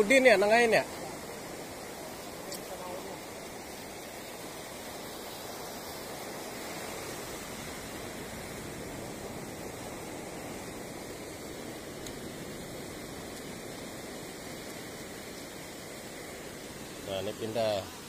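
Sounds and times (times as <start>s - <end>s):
sea surf breaking: 0.0s - 18.0s.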